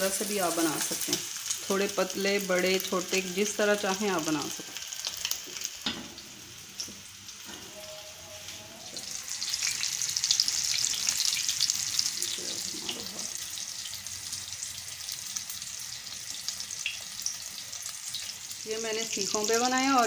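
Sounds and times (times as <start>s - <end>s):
kebabs sizzling in hot oil: 0.0s - 20.0s.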